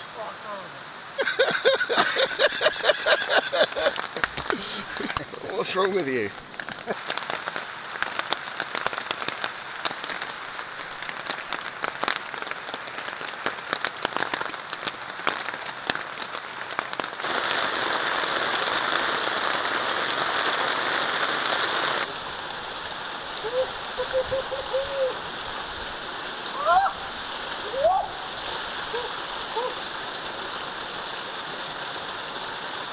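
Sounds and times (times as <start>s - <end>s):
rain hissing: 0.0s - 32.9s
raindrops ticking on a tarp: 1.2s - 32.9s
waterfall splashing into a stream: 1.2s - 32.9s.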